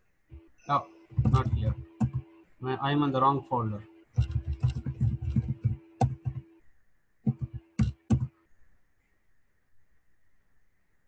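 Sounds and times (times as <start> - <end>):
computer keyboard typing: 1.1 - 2.4, 4.2 - 6.5, 7.3 - 8.4.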